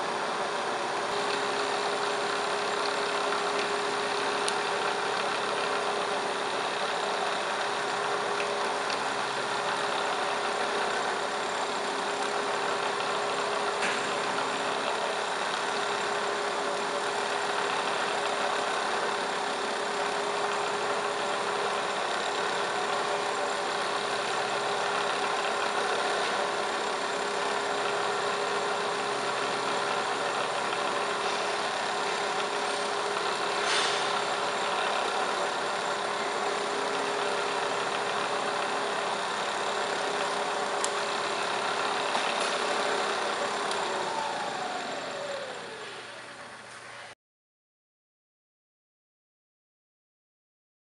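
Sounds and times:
milling machine humming and whining: 0:00.0 - 0:47.1.

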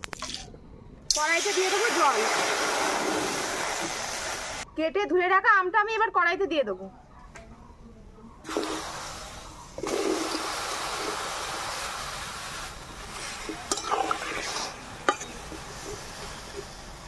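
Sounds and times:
metal spatula scraping pan: 0:13.2 - 0:16.4.

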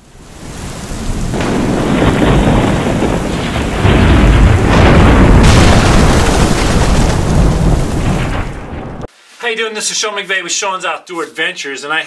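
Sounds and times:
heavy rain: 0:00.0 - 0:09.1
rumbling thunder: 0:00.1 - 0:09.1.

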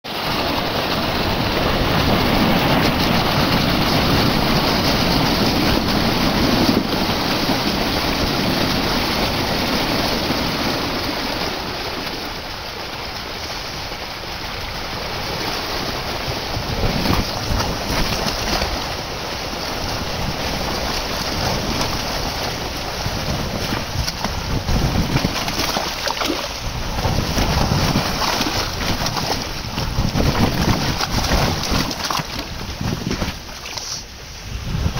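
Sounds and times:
water gushing and splashing: 0:00.1 - 0:34.9
fish thrashing and splashing: 0:16.6 - 0:34.2.

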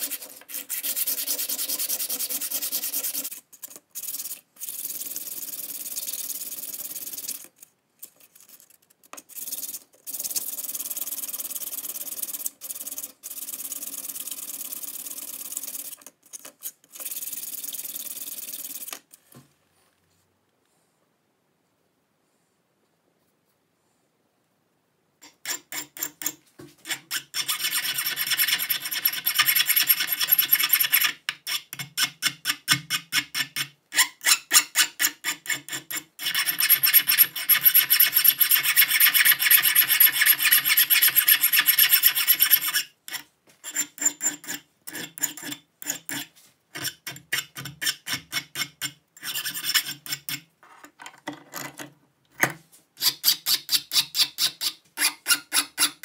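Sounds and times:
hand file rasping on metal: 0:00.0 - 0:03.4, 0:25.2 - 0:50.4, 0:53.0 - 0:56.0.

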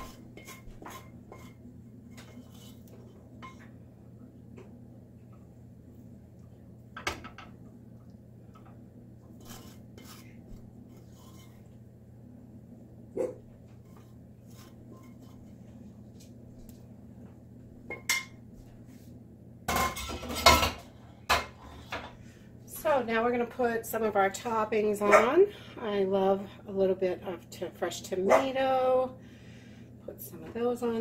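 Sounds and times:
wooden spoon scraping a skillet: 0:00.0 - 0:03.8, 0:09.3 - 0:11.9, 0:13.7 - 0:16.1.

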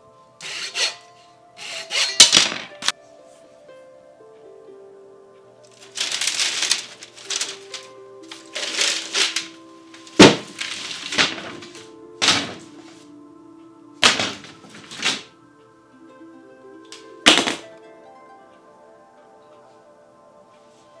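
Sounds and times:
soft background music: 0:00.0 - 0:21.0
bamboo canes clattering: 0:02.2 - 0:02.9, 0:05.7 - 0:13.1, 0:14.0 - 0:15.4, 0:16.9 - 0:17.7
canes knocking on wooden floor: 0:10.1 - 0:12.8, 0:14.0 - 0:15.3, 0:17.3 - 0:17.6.

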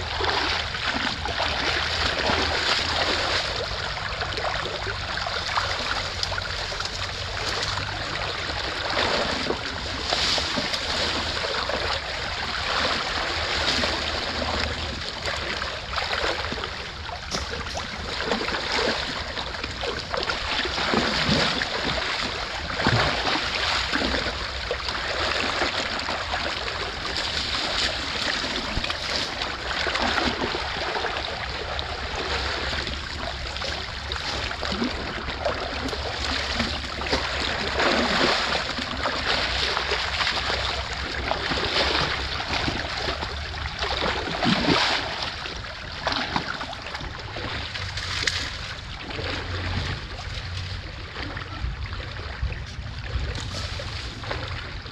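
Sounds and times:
creek water rushing: 0:00.0 - 0:51.4
boots splashing in water: 0:00.0 - 0:54.9.

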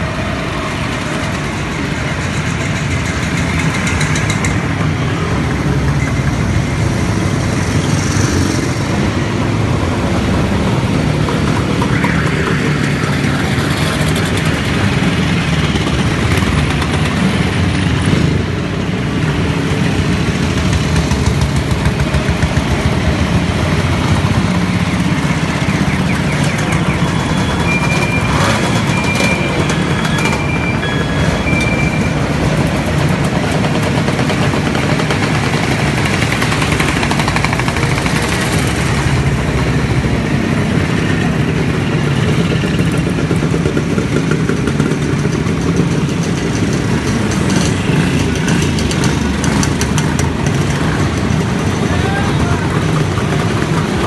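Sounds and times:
short high beeps: 0:27.0 - 0:32.2.

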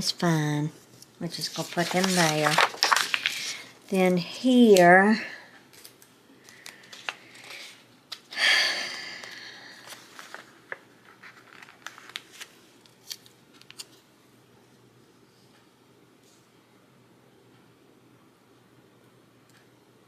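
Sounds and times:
paper page turning: 0:01.3 - 0:03.7, 0:05.7 - 0:08.3, 0:09.8 - 0:14.0.

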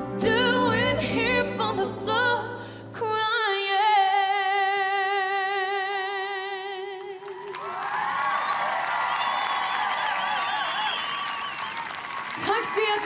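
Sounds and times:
person singing pop song: 0:00.0 - 0:07.2, 0:12.4 - 0:13.0.

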